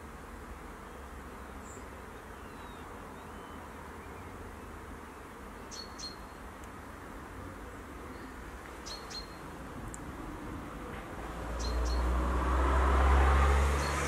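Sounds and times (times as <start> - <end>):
bird chirp: 0.9 - 4.4, 5.7 - 6.4, 8.1 - 9.5, 11.5 - 12.2, 13.7 - 14.0.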